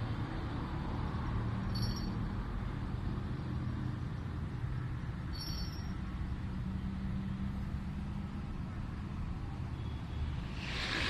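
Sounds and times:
low rumble of road traffic: 0:00.0 - 0:11.0
bite alarm bells tinkling: 0:01.7 - 0:02.3, 0:05.3 - 0:06.0.

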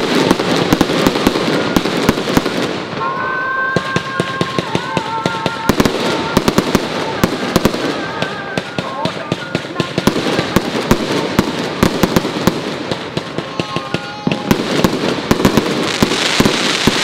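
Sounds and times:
fireworks cracks and bangs: 0:00.0 - 0:17.0.

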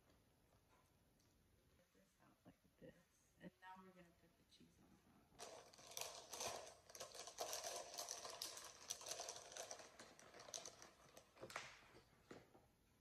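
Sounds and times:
plastic bag crinkling: 0:05.4 - 0:12.0.

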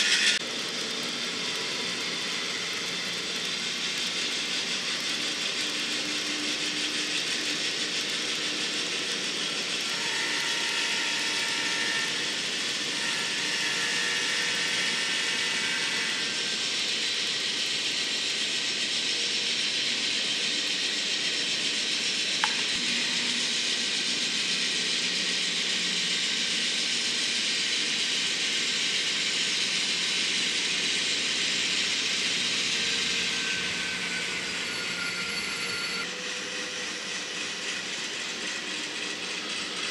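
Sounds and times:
model locomotive running rumble: 0:00.0 - 0:39.9
sharp click: 0:22.4 - 0:22.8.

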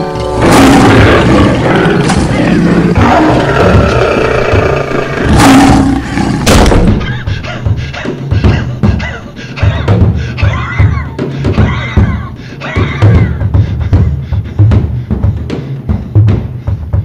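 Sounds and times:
drum-heavy music: 0:00.3 - 0:17.0
door slamming: 0:06.4 - 0:07.1
man panting heavily: 0:07.0 - 0:17.0.

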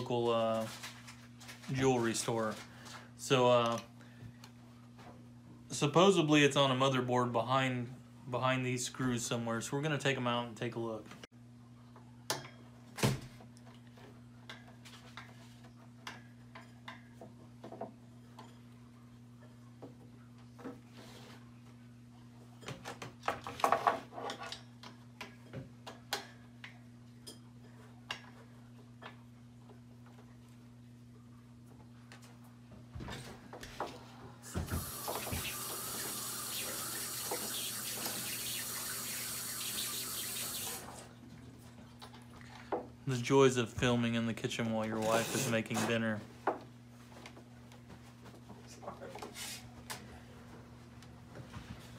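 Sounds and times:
faucet running into sink: 0:34.5 - 0:40.9.

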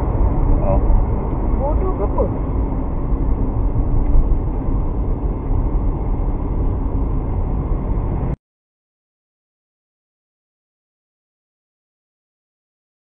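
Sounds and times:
road and engine rumble in car: 0:00.0 - 0:08.4.

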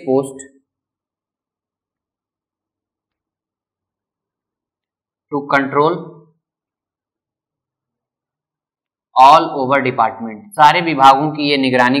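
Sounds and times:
man speaking: 0:00.0 - 0:00.4, 0:09.2 - 0:12.0.

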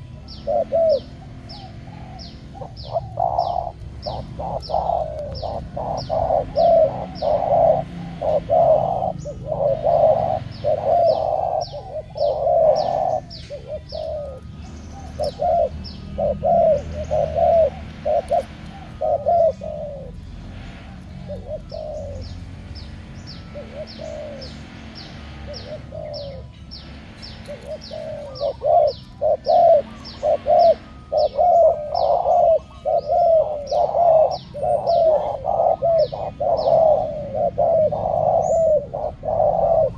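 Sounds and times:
doves cooing: 0:00.0 - 0:39.9.

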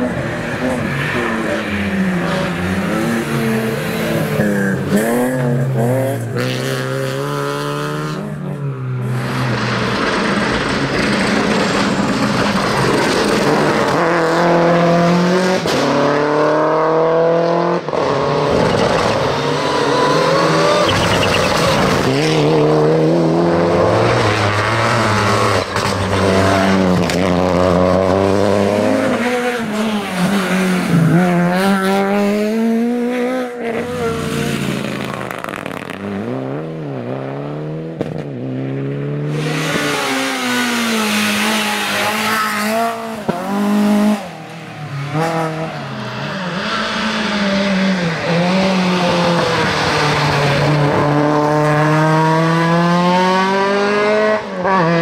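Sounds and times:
rally car engines revving: 0:00.0 - 0:55.0
car accelerating away: 0:09.0 - 0:55.0.

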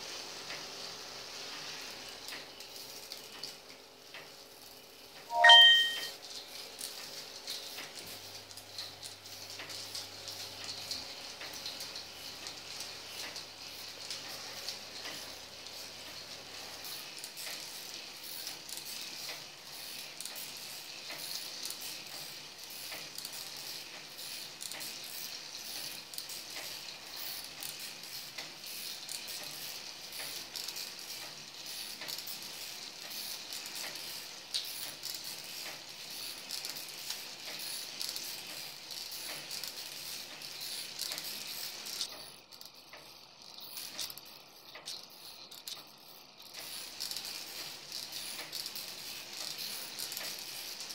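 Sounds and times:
plastic gears clicking and rattling: 0:06.3 - 0:50.9.

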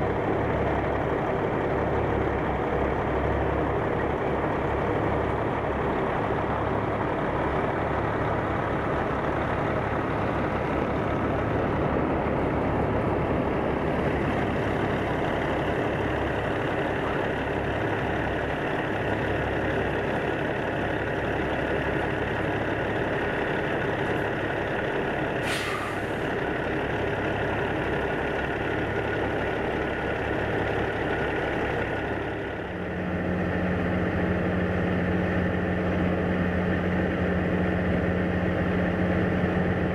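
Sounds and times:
distant trucks idling: 0:00.0 - 0:39.9
truck diesel engine running: 0:00.0 - 0:39.9
air brake hiss: 0:25.4 - 0:26.2.

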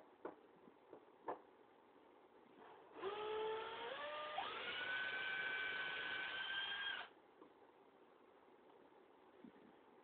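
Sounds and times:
cordless drill motor whining: 0:03.0 - 0:07.1.

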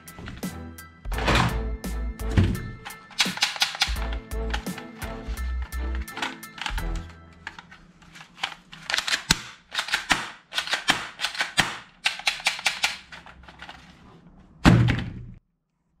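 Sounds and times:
plastic toy pistol clicks and rattles: 0:02.9 - 0:13.8.

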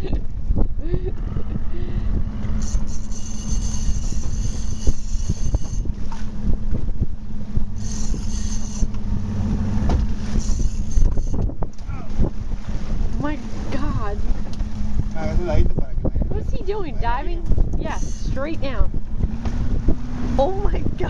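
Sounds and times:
boat engine running: 0:00.0 - 0:21.0
wind buffeting microphone: 0:00.0 - 0:21.0
high-pitched whine: 0:02.6 - 0:06.0, 0:07.5 - 0:11.5, 0:17.9 - 0:18.8.

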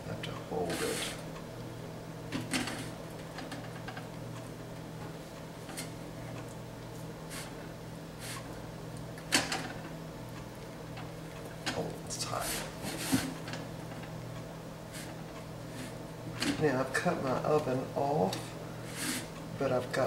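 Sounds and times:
low steady hum: 0:00.0 - 0:20.0
spatula scraping pie crust: 0:00.6 - 0:01.2, 0:18.8 - 0:19.3.

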